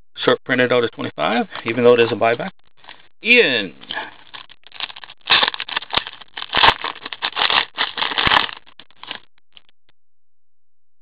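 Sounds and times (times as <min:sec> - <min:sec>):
foil wrapper tearing and crinkling: 0:04.2 - 0:09.3.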